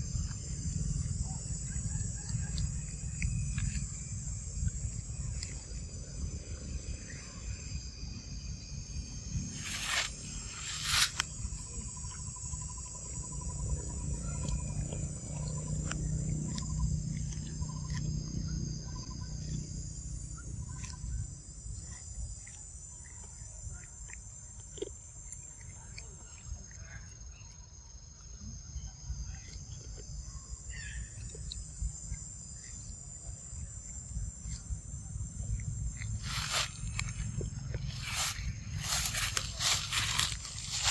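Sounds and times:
high-pitched insect drone: 0.0 - 23.6, 32.0 - 40.9.

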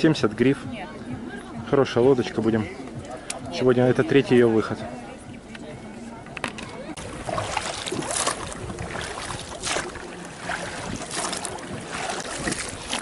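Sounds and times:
oars splashing in water: 6.9 - 13.0.

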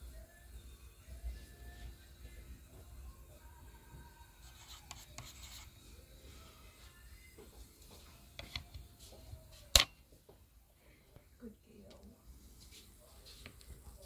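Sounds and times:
pen tip scraping on chip: 4.4 - 5.8.

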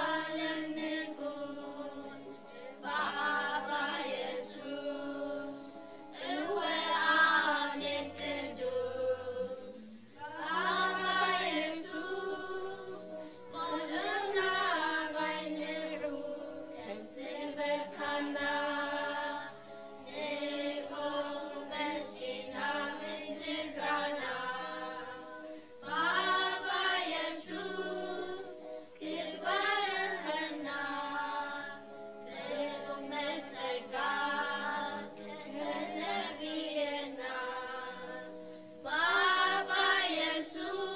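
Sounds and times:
group singing worship song: 0.0 - 40.9.

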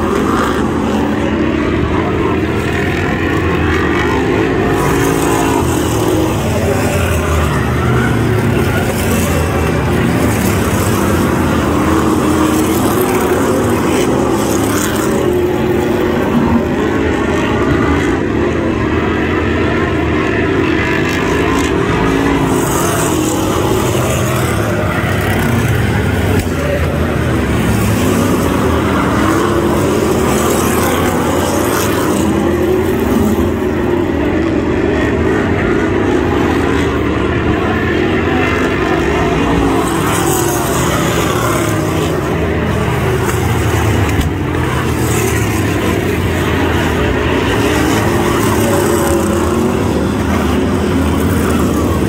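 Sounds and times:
racing car engines: 0.0 - 52.0.

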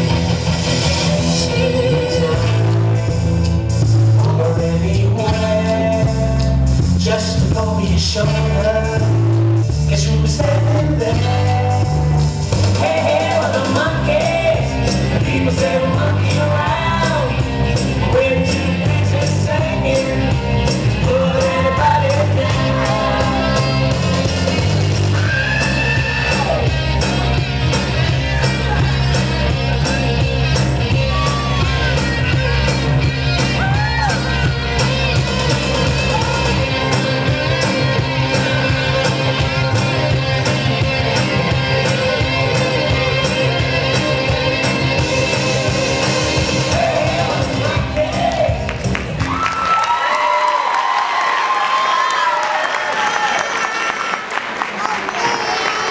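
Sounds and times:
steady beat and bass line: 0.0 - 49.4
person singing: 1.0 - 3.2, 4.0 - 24.3, 27.8 - 48.7.

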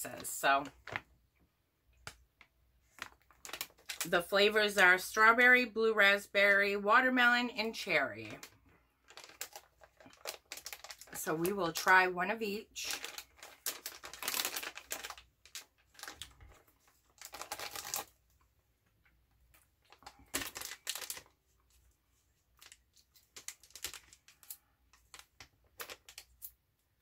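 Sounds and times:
plastic pouch crinkling: 2.0 - 4.2, 8.2 - 11.9, 12.8 - 18.5, 19.4 - 26.6.

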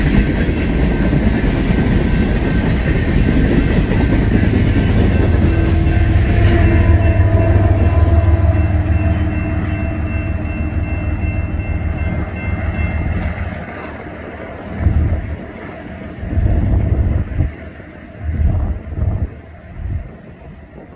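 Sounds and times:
freight train rumbling past: 0.0 - 20.9
long steady tone: 2.9 - 16.3.

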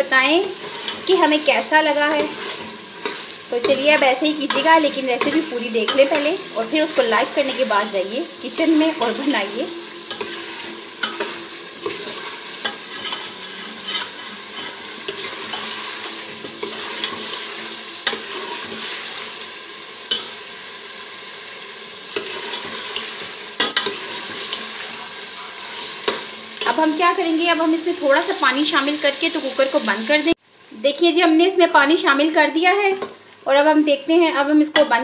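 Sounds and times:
curry sizzling in oil: 0.0 - 35.0
metal ladle scraping pot: 10.0 - 19.1.

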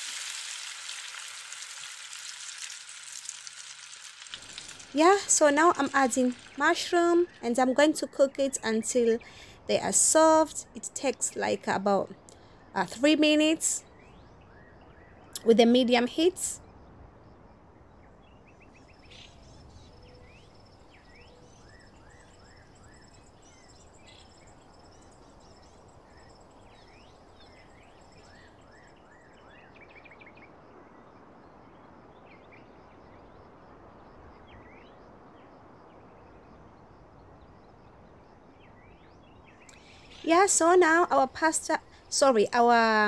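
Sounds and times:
small birds chirping: 4.3 - 16.8, 17.8 - 30.6, 38.6 - 43.0.

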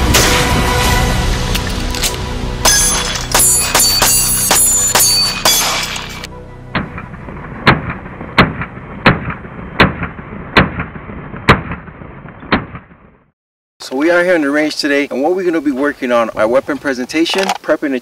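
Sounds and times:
sharp hits: 0.0 - 13.0.

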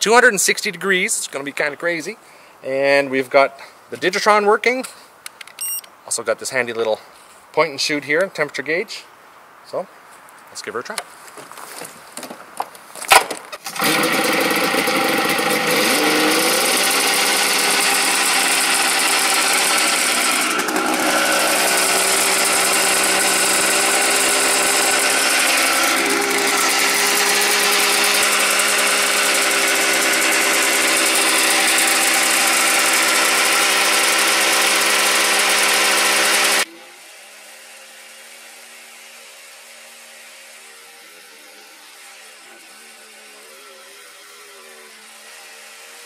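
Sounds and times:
snowmobile engine running: 13.6 - 36.7.

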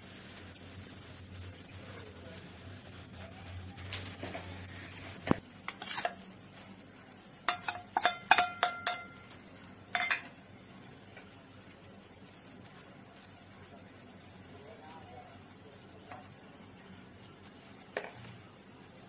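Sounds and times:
steel bowls clinking: 7.5 - 10.4.

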